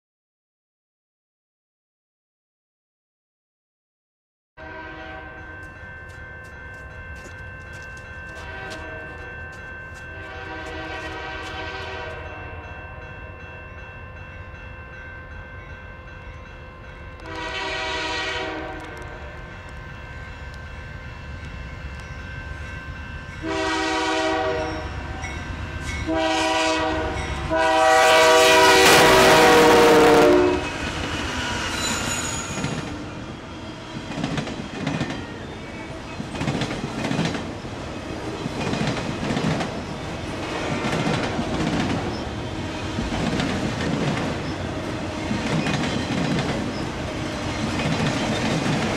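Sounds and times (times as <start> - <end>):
locomotive air horn blasts: 4.6 - 5.5, 8.3 - 9.2, 10.1 - 13.1, 17.2 - 19.6, 23.4 - 25.2, 26.0 - 30.8
train wheels clicking over rails: 34.0 - 37.6, 38.2 - 40.0, 40.6 - 48.9.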